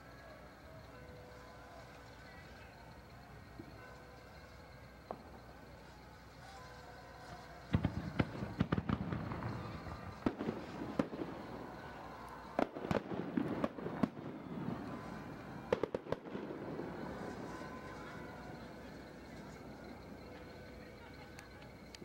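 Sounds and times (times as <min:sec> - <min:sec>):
fireworks bangs with rumble: 0:07.5 - 0:20.0.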